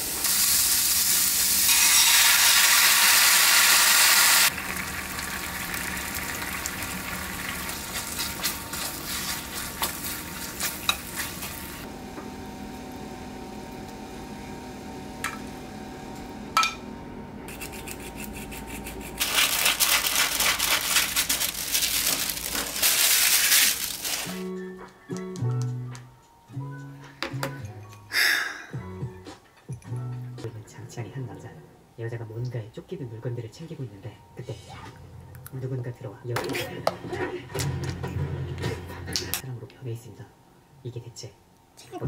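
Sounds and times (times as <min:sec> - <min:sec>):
meat sizzling in a frying pan: 0:00.0 - 0:11.9
paper rustling: 0:19.2 - 0:24.4.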